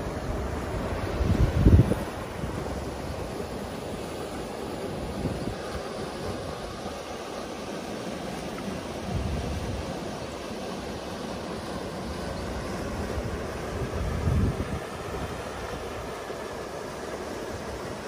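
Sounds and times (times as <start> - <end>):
wind buffeting the microphone: 0.0 - 3.5, 4.9 - 6.9, 9.0 - 10.1, 12.5 - 16.1
river water rushing over rocks: 0.0 - 18.0.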